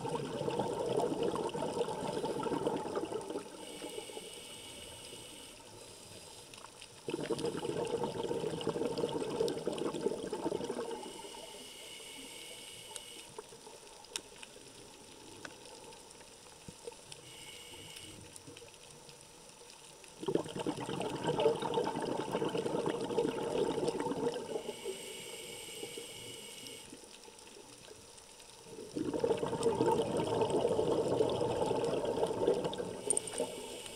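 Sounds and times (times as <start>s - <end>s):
exhaled bubbles gurgling: 0.0s - 4.1s, 7.0s - 11.6s, 20.2s - 25.1s, 28.6s - 33.9s
regulator inhale hiss: 3.4s - 6.8s, 10.8s - 13.8s, 17.1s - 18.5s, 24.4s - 27.3s, 32.7s - 33.9s.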